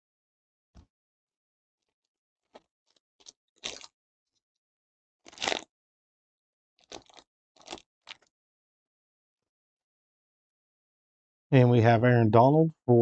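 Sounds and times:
foil wrapper crackling: 3.2 - 3.9, 5.3 - 5.7, 6.8 - 8.3.

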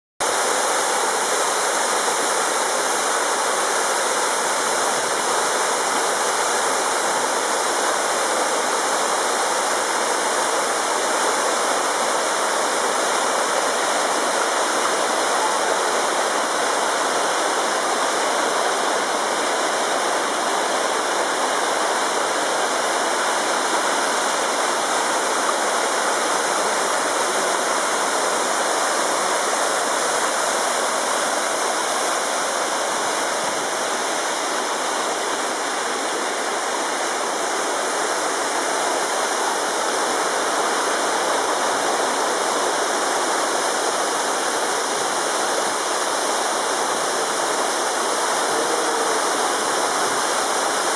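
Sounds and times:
water rushing over rocks: 0.2 - 50.9.

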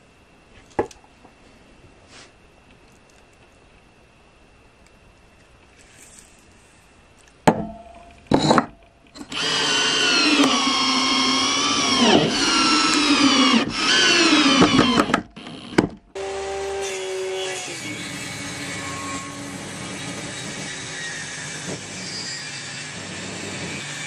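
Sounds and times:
cordless drill driving screws: 9.2 - 16.3.

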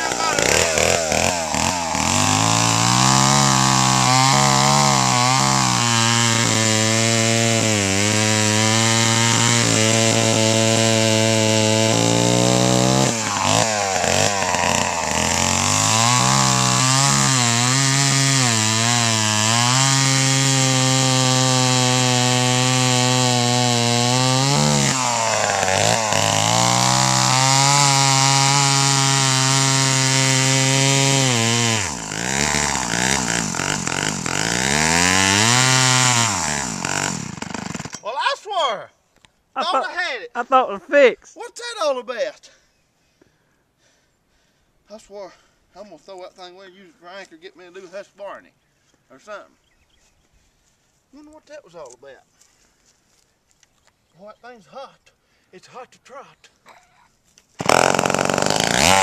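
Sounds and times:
chainsaw cutting log: 0.0 - 38.1, 57.6 - 59.0.

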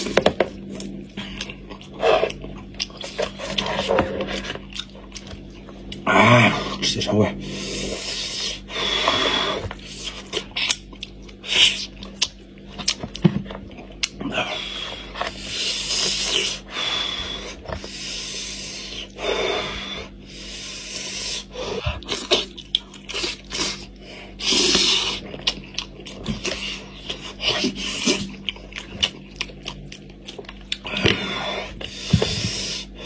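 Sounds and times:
wet chewing with smacks: 25.1 - 31.2.

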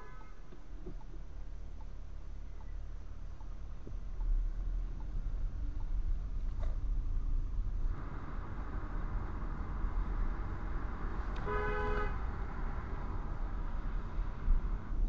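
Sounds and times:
car horn blast: 0.0 - 0.4, 11.4 - 12.3
car engine and road noise: 0.0 - 15.0.

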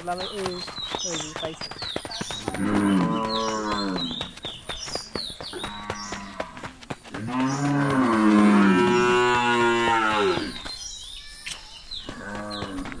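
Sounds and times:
cow mooing: 7.2 - 10.6.

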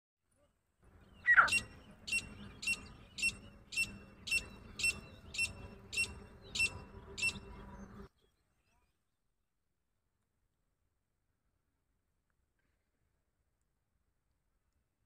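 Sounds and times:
francolin calling: 1.0 - 7.9.

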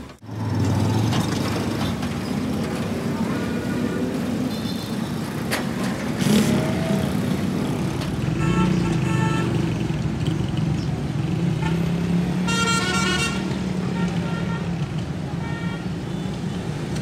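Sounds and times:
motorbike engines running: 0.0 - 12.5.

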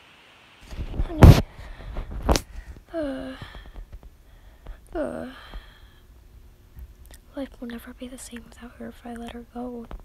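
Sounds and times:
person whimpering: 2.9 - 3.7, 4.9 - 5.8.

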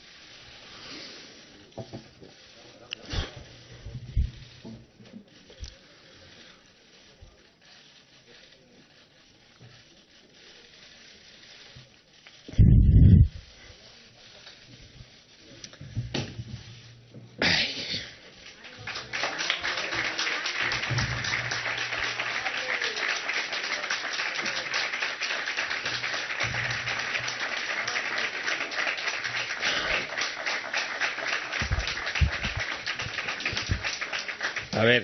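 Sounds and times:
crowd applauding: 18.2 - 35.0.

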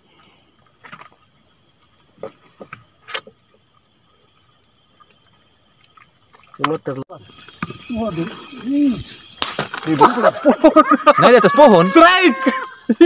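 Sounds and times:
clicks and knocks in boat: 5.8 - 7.9.

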